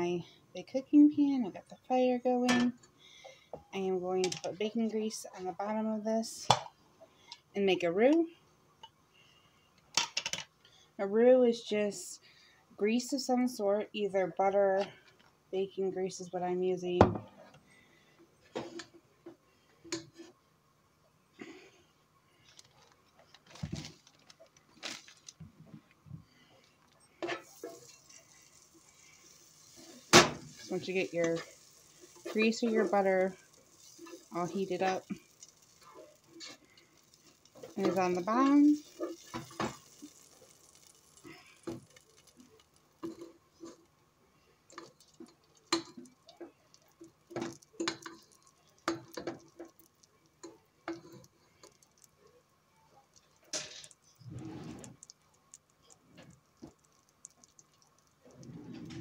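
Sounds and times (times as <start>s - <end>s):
bacon grease ticking and popping: 26.4s - 58.5s.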